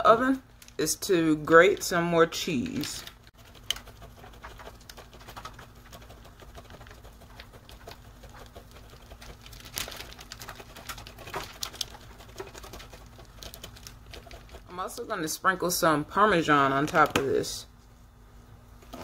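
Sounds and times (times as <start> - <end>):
cheese rasping on a box grater: 3.4 - 14.7.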